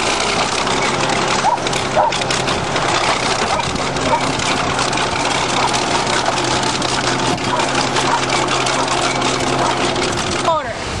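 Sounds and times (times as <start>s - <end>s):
rapid clatter: 0.0s - 10.8s
bulldozer diesel engine running: 0.0s - 11.0s.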